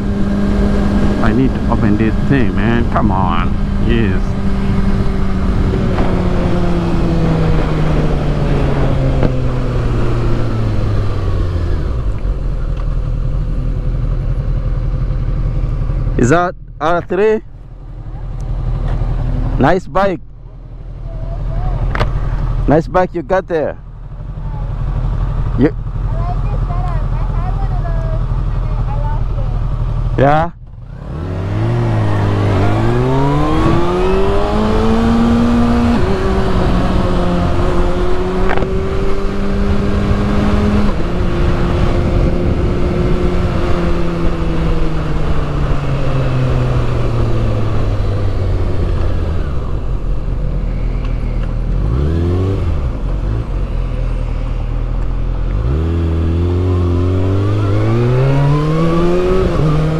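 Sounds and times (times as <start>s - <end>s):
wind noise: 0.0s - 12.3s, 31.6s - 53.6s
motorcycle engine revving: 0.0s - 59.9s.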